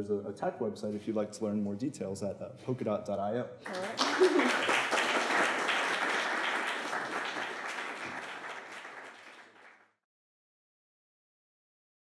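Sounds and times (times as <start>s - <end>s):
audience applauding: 3.7s - 9.9s.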